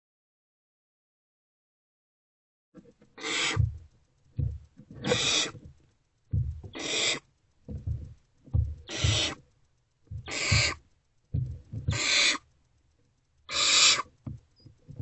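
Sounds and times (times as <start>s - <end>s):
owlets rasping screeches: 3.2s - 3.7s, 5.0s - 5.6s, 6.7s - 7.3s, 8.9s - 9.4s, 10.2s - 10.8s, 11.9s - 12.4s, 13.5s - 14.2s
short low thumps: 3.6s - 5.1s, 6.3s - 6.8s, 7.7s - 9.4s, 10.1s - 12.0s.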